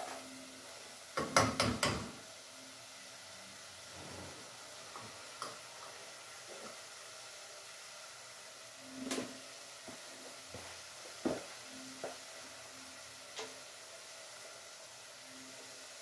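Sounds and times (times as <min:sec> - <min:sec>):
faint stove hiss: 0:00.0 - 0:16.0
metal spoon knocking on pot: 0:01.2 - 0:02.1.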